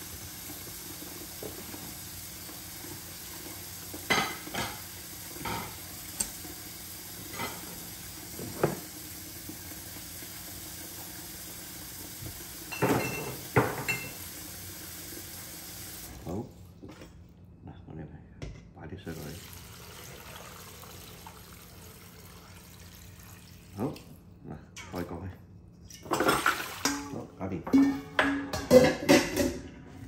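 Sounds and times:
pot and utensils clinking: 0:04.0 - 0:06.4, 0:12.7 - 0:14.2, 0:25.9 - 0:30.0.

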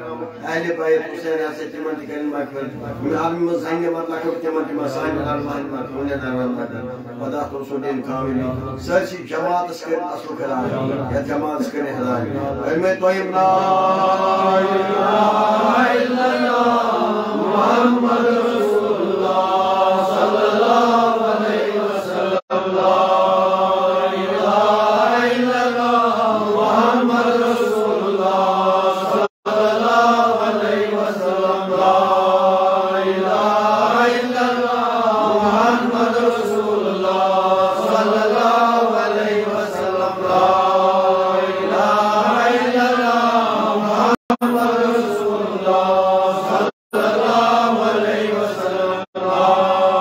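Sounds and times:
person chanting: 0:12.3 - 0:50.0.

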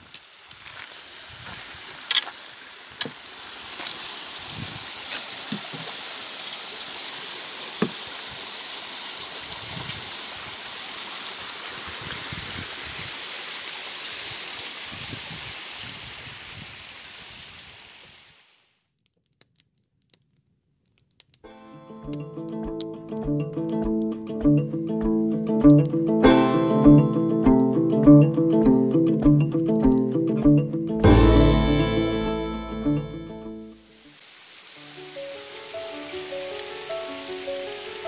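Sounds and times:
stream over rocks: 0:00.0 - 0:18.0, 0:33.8 - 0:38.0.

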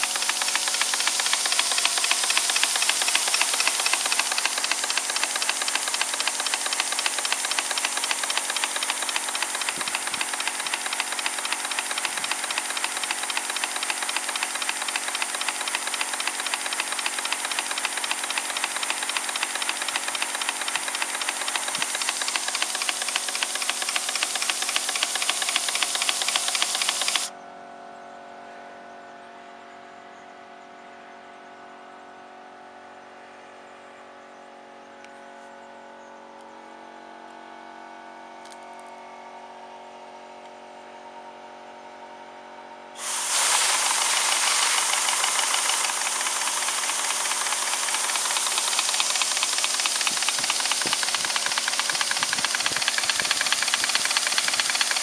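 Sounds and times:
model steam engine running: 0:00.0 - 0:27.3, 0:42.9 - 0:55.0.

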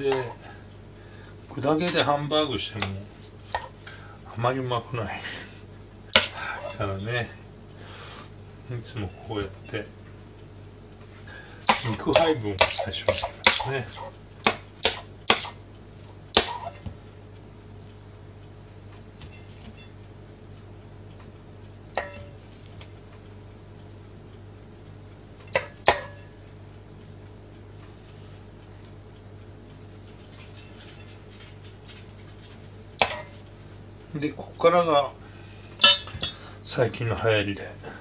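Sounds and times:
utensil clinking against metal bowl: 0:00.0 - 0:00.5, 0:02.8 - 0:03.8, 0:06.2 - 0:06.8, 0:11.7 - 0:15.6, 0:16.4 - 0:16.9, 0:22.0 - 0:22.4, 0:25.6 - 0:26.3, 0:30.3 - 0:33.4, 0:35.8 - 0:36.4.

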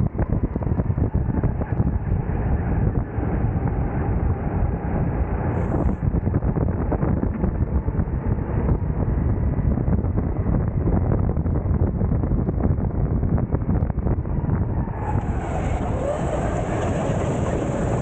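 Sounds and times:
wind rumble on microphone: 0:00.0 - 0:18.0
go-kart engine racing: 0:14.3 - 0:18.0.

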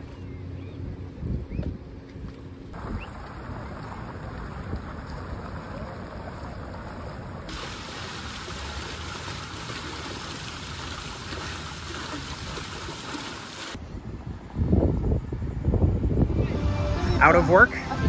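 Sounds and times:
running water rushing: 0:02.8 - 0:13.8.

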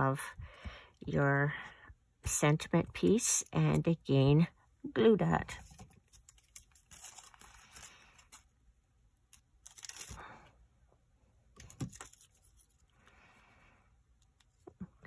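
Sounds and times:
paper backing rustling: 0:05.5 - 0:08.6, 0:09.3 - 0:10.3, 0:11.6 - 0:12.9.

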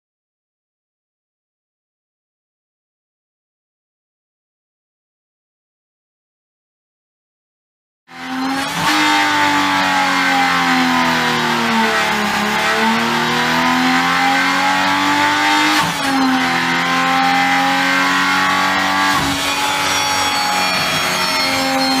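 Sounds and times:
engine running on test rig: 0:08.1 - 0:22.0.

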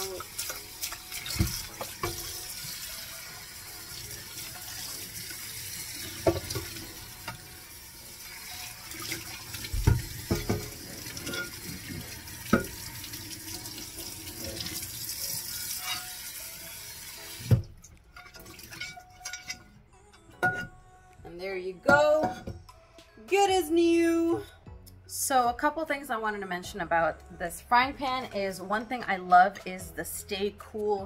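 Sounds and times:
tap water splashing on pan: 0:00.2 - 0:02.8, 0:06.1 - 0:07.4, 0:09.0 - 0:12.9
pan knocking in sink: 0:06.2 - 0:07.4, 0:09.7 - 0:11.8.

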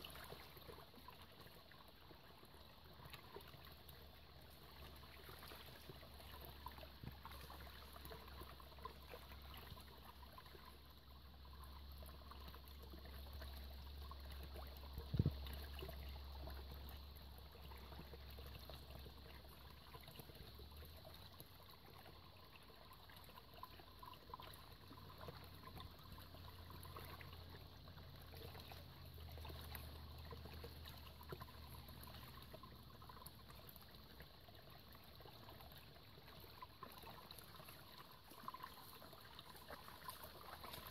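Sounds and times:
stream trickling over stones: 0:00.0 - 0:40.9.

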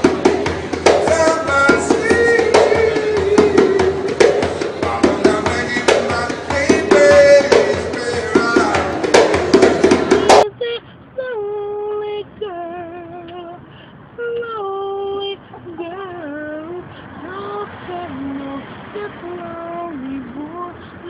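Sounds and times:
man singing unaccompanied: 0:00.0 - 0:10.4
man singing over music: 0:00.9 - 0:10.1.

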